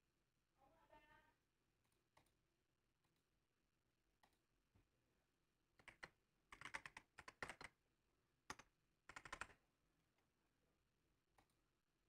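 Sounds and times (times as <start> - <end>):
keyboard typing: 5.8 - 7.7, 8.5 - 9.6.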